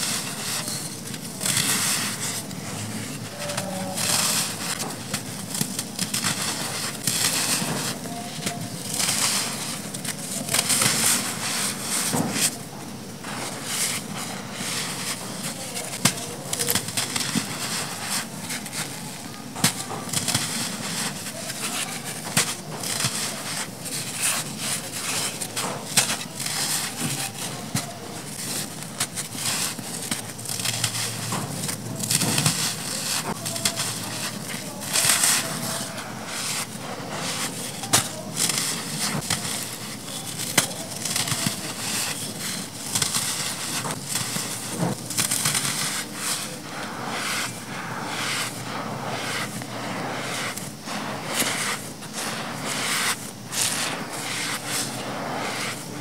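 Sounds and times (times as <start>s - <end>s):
grains sifting and pouring: 0.0s - 56.0s
sand clumps crunching by hand: 13.2s - 56.0s.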